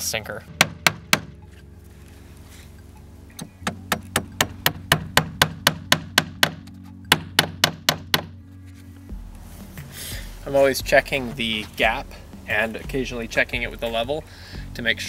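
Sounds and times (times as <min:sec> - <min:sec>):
hammer striking nail into wood: 0:00.6 - 0:01.4, 0:03.4 - 0:08.3.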